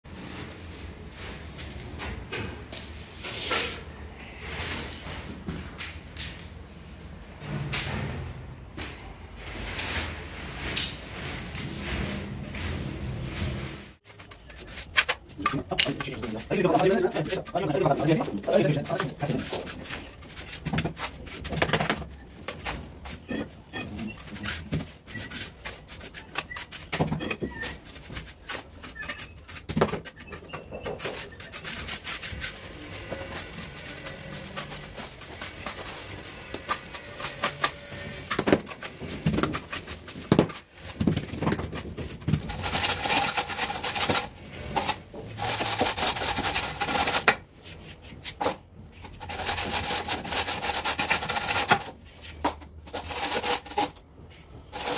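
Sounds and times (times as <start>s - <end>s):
trowel scraping mortar: 14.0s - 54.0s, 54.7s - 54.9s
straightedge rasping across mortar: 14.1s - 48.5s, 49.1s - 54.0s.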